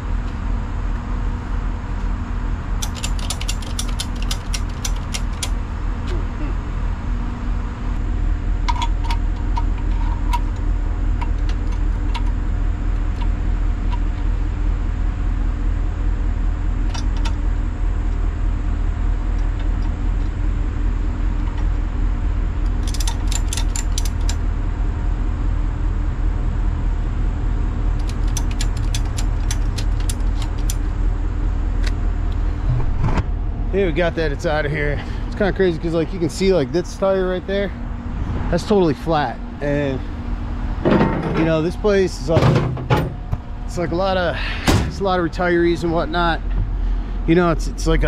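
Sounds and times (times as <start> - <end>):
truck engine idling: 0.0 - 48.0
ratchet straps clicking: 2.8 - 5.6, 22.7 - 24.4, 28.0 - 30.8.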